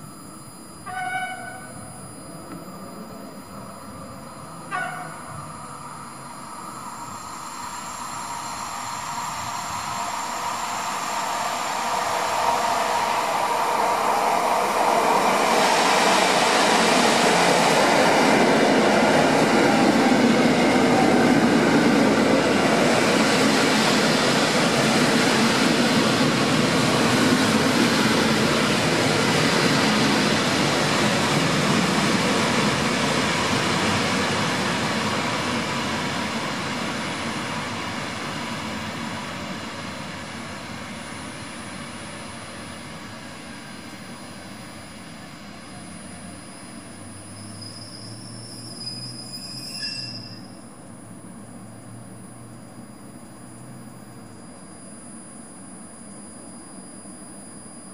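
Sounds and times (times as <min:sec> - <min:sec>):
train wheels rumbling on rails: 0:06.8 - 0:49.9.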